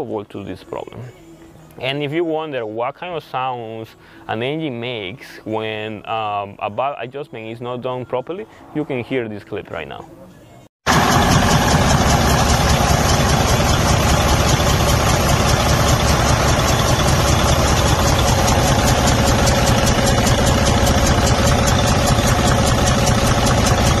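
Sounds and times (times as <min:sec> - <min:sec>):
diesel engine idling: 0:10.9 - 0:24.0
rhythmic valvetrain ticking: 0:11.5 - 0:24.0.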